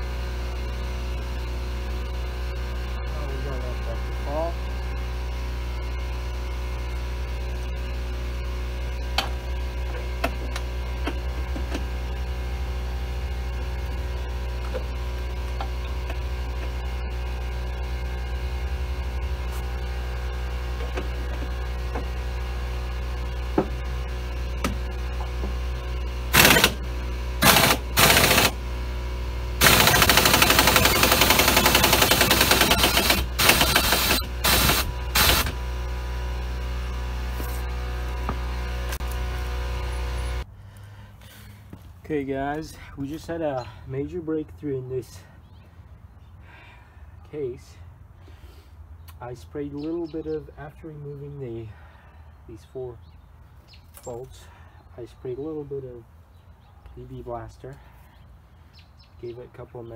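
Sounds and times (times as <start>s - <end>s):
air compressor humming: 0.0s - 40.5s
impact wrench rattling: 26.3s - 26.8s, 27.4s - 28.6s, 29.6s - 35.6s.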